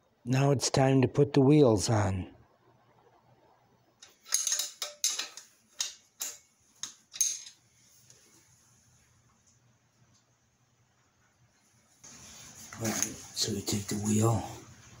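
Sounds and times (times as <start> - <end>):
steel hardware clicking and rattling: 4.0 - 7.6.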